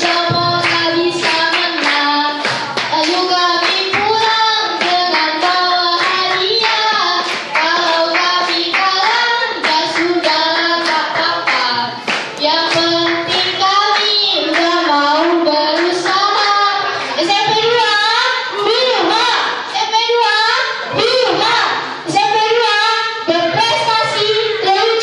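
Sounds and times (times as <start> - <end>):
hands clapping: 0.0 - 17.9
teenagers singing: 0.0 - 25.0.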